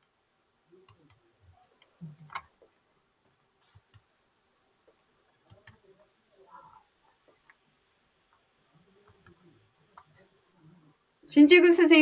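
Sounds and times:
faint clicks: 0:08.3 - 0:09.4.

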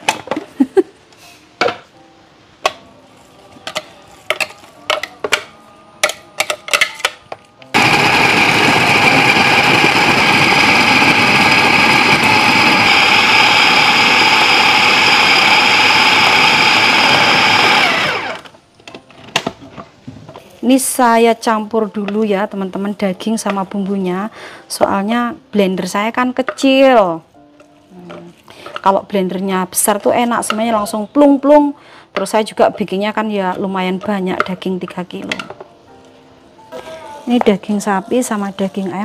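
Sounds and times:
electric blender motor grinding: 0:07.6 - 0:18.6.

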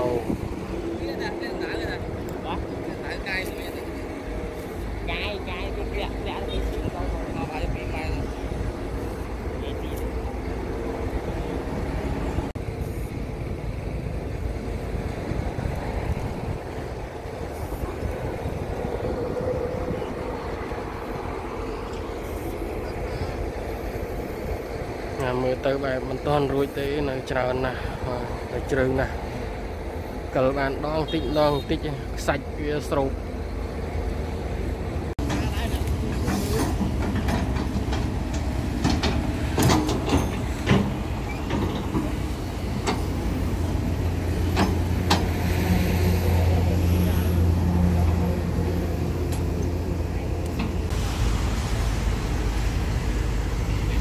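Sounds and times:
excavator diesel engines droning: 0:00.0 - 0:54.0.

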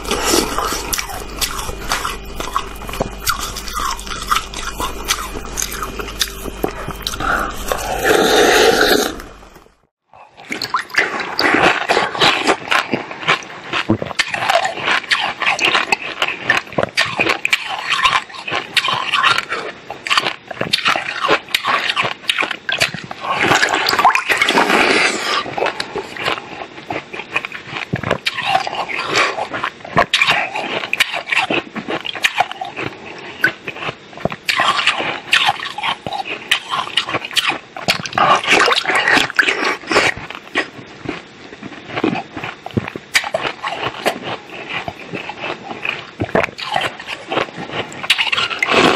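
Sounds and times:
person chewing ice crunching: 0:00.0 - 0:48.9.

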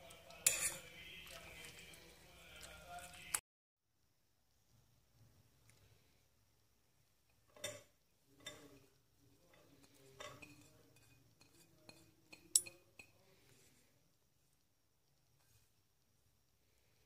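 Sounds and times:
glass and spoon clinking: 0:00.4 - 0:00.9, 0:10.2 - 0:13.1.

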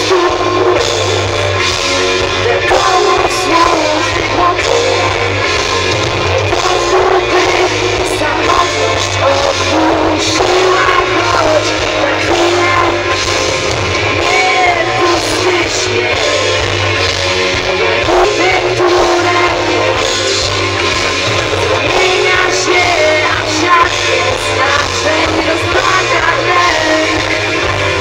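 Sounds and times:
woman singing: 0:00.0 - 0:01.2, 0:02.4 - 0:05.4, 0:06.5 - 0:13.2, 0:14.1 - 0:16.6, 0:17.8 - 0:20.3, 0:21.5 - 0:27.6
live band playing: 0:00.0 - 0:28.0.

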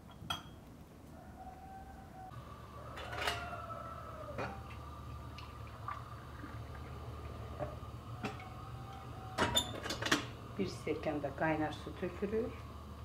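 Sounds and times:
kettle and glass clinking: 0:04.3 - 0:04.8, 0:06.0 - 0:10.3.

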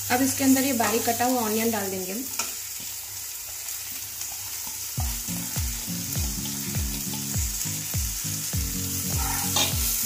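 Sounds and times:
onions sizzling in oil: 0:00.0 - 0:10.0
background music with steady beat: 0:05.0 - 0:10.0.

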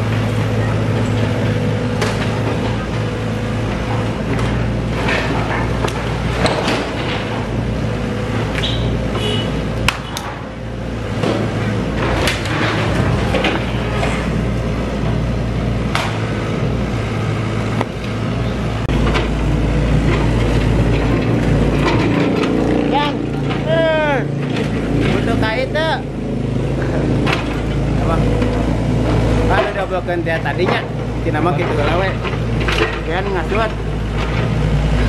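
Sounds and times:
excavator diesel engine: 0:00.0 - 0:35.0
masonry and timber crashing: 0:00.1 - 0:09.1, 0:09.8 - 0:16.8, 0:18.6 - 0:25.7.

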